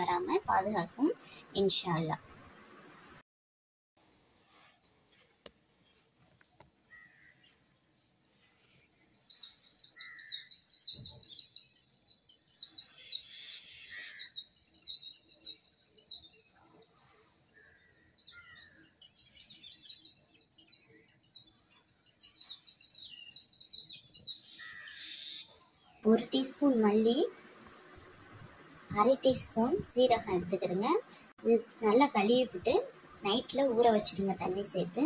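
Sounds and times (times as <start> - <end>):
small birds chirping: 4.4 - 35.0.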